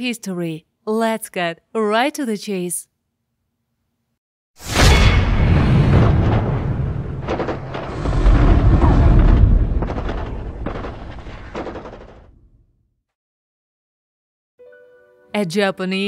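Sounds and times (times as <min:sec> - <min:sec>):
sharp blasts: 0:04.6 - 0:12.3
heavy booms and deep rumble: 0:04.7 - 0:12.3.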